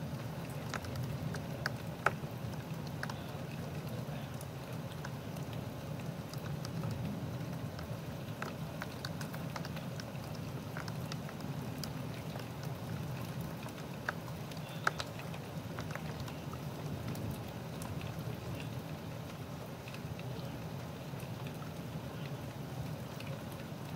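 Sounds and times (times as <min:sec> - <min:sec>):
sharp drip ticks: 0:00.0 - 0:23.9
thunderstorm rain: 0:06.4 - 0:08.8, 0:15.8 - 0:19.3.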